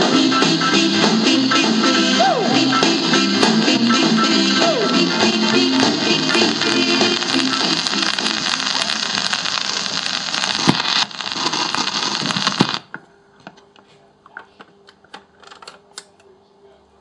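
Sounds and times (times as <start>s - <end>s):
record surface hiss and crackle: 2.4s - 17.0s
record pops: 4.6s - 13.0s.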